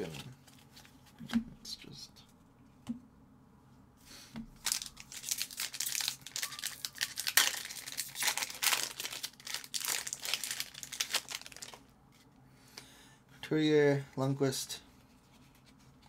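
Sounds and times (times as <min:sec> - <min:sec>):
foil wrapper tearing and crackling: 0:04.6 - 0:11.8.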